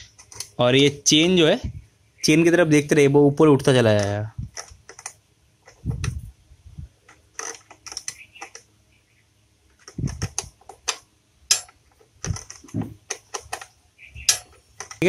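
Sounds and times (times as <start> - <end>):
spanner clicking on metal nut: 9.8 - 15.0.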